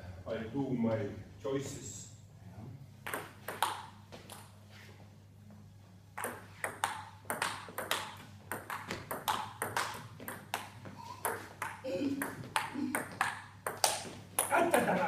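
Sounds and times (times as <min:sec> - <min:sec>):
table tennis ball clicking: 0:06.2 - 0:14.6.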